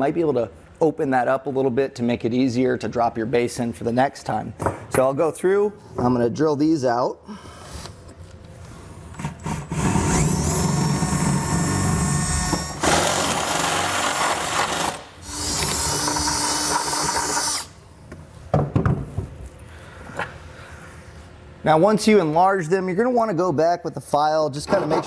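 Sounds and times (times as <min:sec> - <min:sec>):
drill whining through metal: 0:09.4 - 0:17.7.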